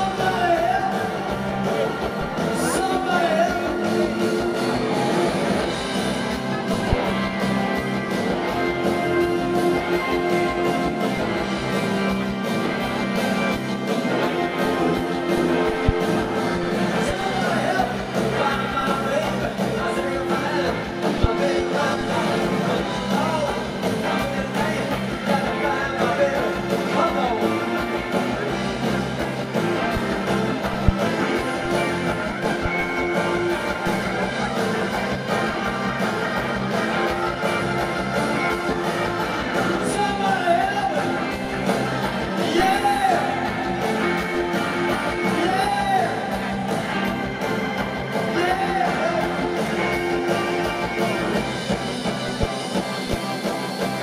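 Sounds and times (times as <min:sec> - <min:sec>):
male lead vocal: 0:00.0 - 0:05.5, 0:15.5 - 0:28.5, 0:39.6 - 0:46.8, 0:48.2 - 0:51.4
live rock band: 0:00.0 - 0:54.0.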